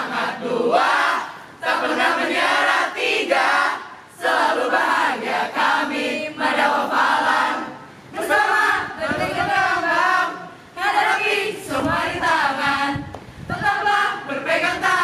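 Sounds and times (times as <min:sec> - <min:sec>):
group chanting a cheer: 0:00.0 - 0:11.7.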